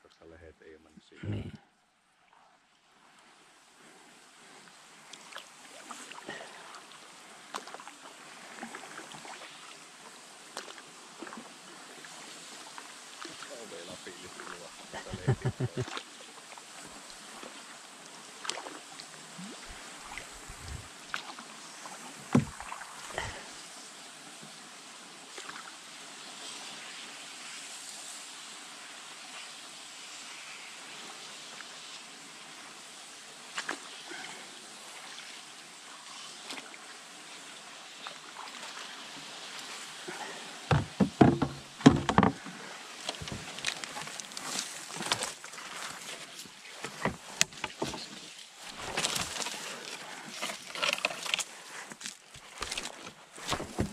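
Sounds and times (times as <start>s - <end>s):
paddle strokes in water: 3.2s - 53.9s
canoe bumping log: 20.3s - 20.9s, 22.2s - 23.4s, 40.7s - 46.0s, 46.7s - 49.6s, 50.3s - 53.9s
paddle knocking canoe hull: 20.4s - 20.9s, 22.2s - 23.4s, 40.7s - 43.6s, 46.8s - 48.2s, 53.4s - 53.9s.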